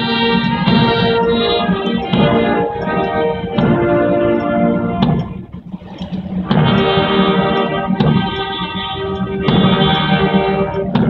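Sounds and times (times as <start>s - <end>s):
drum beat: 0.0s - 4.4s, 6.4s - 7.4s, 8.0s - 11.0s
brass chords: 0.0s - 11.0s.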